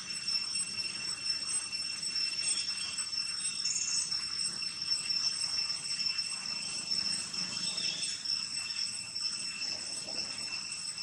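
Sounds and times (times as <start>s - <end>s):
insects droning: 0.0s - 11.0s
faint chirps: 6.4s - 10.7s.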